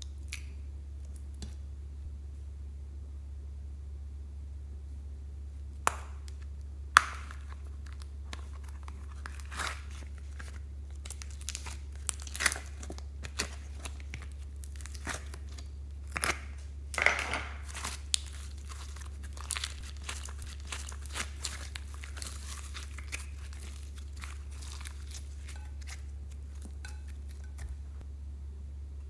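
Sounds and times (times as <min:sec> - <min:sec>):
steady low hum: 0:00.0 - 0:29.0
slime squishing and crackling: 0:05.8 - 0:28.0.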